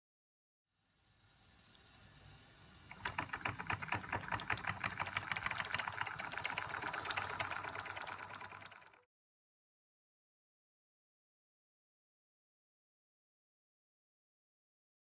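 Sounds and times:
toy steam engine ticking and hissing: 0:00.8 - 0:09.1.

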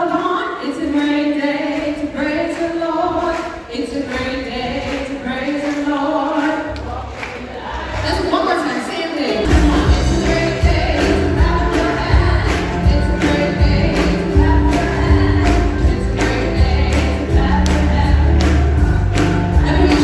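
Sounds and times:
gospel band playing: 0:00.0 - 0:20.0
voices singing: 0:00.0 - 0:20.0
heavy bass: 0:09.5 - 0:20.0
steady drum beat: 0:09.5 - 0:20.0.

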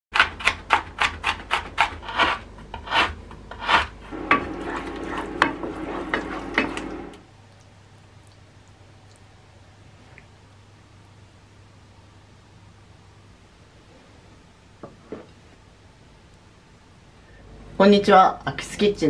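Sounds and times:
knife chopping on wooden board: 0:00.1 - 0:06.8
spatula scraping frying pan: 0:01.0 - 0:07.2
meat sizzling: 0:04.1 - 0:07.2.

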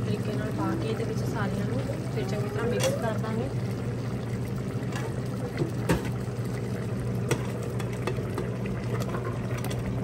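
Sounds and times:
ladle stirring simmering gravy: 0:04.2 - 0:10.0.

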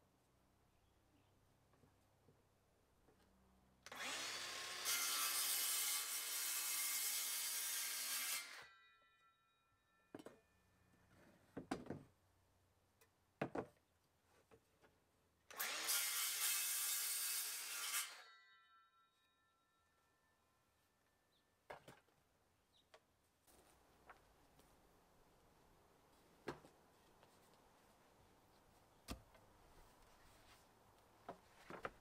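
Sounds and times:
circular saw cutting wood: 0:03.9 - 0:08.7, 0:15.5 - 0:18.3.

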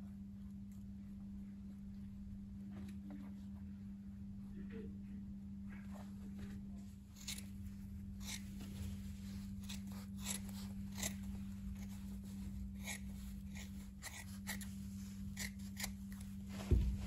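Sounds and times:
scissors snipping hide: 0:07.2 - 0:07.5, 0:09.6 - 0:12.0, 0:12.8 - 0:14.7, 0:15.3 - 0:16.3.

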